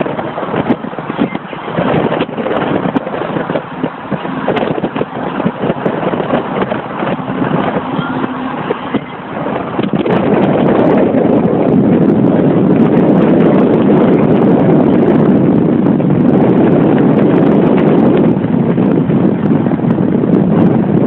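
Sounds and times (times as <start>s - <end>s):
car road noise: 0.0s - 21.0s
wind rushing over microphone: 0.0s - 21.0s.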